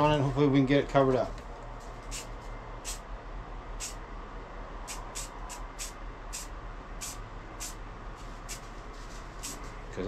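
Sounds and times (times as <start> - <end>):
steady low hum: 0.0 - 10.0
spray can hissing: 2.0 - 3.0, 3.8 - 4.0, 4.9 - 8.7, 9.4 - 9.7.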